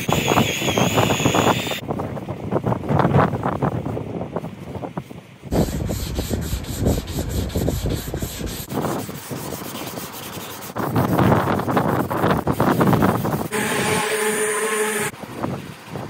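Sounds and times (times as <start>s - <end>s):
hand sanding rasping strokes: 5.5s - 15.1s.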